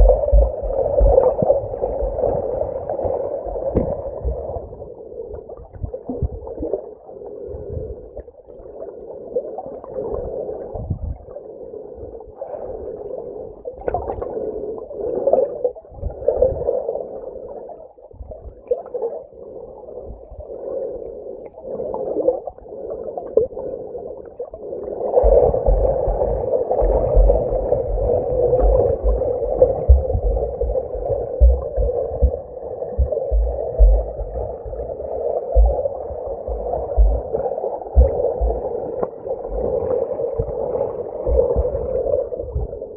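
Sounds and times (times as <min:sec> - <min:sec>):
low underwater thumps: 0:00.0 - 0:02.4, 0:03.5 - 0:04.6, 0:25.2 - 0:38.7
underwater rushing and gurgling: 0:00.0 - 0:42.9.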